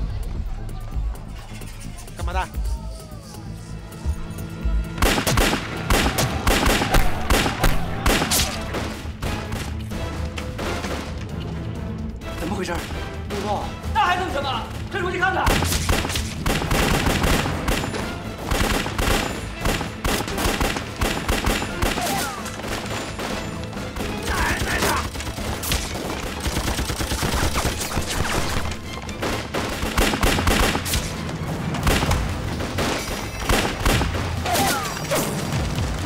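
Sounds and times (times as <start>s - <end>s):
pistol and rifle shots: 5.0s - 8.9s, 15.5s - 28.6s, 29.2s - 31.1s, 31.8s - 34.5s.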